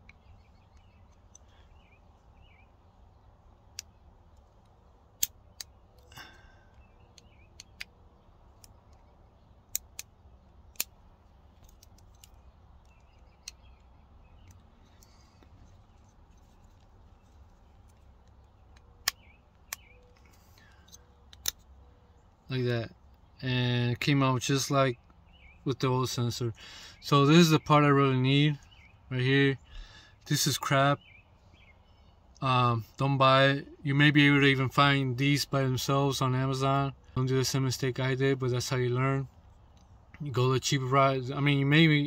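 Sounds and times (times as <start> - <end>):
plastic clicks and snaps: 9.7 - 11.0, 11.6 - 16.1, 17.8 - 21.7.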